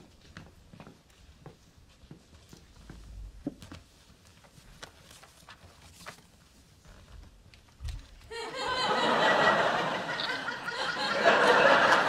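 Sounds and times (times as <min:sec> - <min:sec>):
audience laughter: 0:08.3 - 0:12.0.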